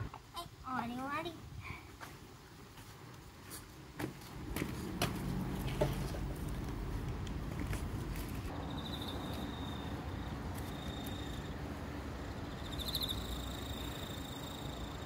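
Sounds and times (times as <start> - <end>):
steady low outdoor hum: 0.0 - 15.0
high-pitched insect trilling: 8.6 - 11.6, 12.4 - 15.0.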